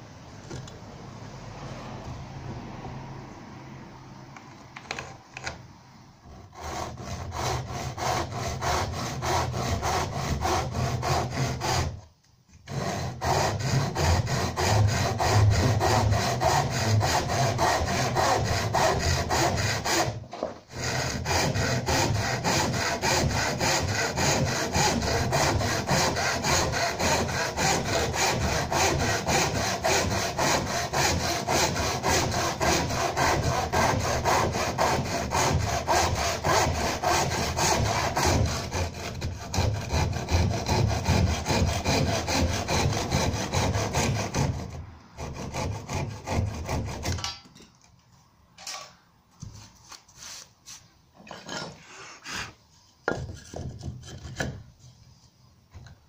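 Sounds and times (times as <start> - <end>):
handsaw cutting wood: 6.2 - 47.4.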